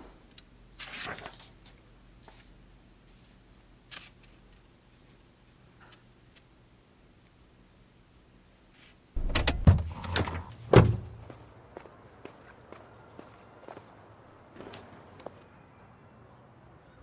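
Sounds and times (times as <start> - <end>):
book pages turning: 0.8 - 2.5.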